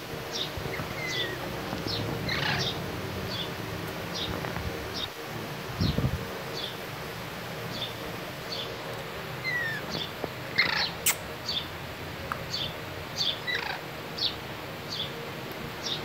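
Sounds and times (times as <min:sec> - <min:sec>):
parakeet chirping: 0:00.3 - 0:03.5, 0:09.4 - 0:10.0, 0:10.6 - 0:11.6.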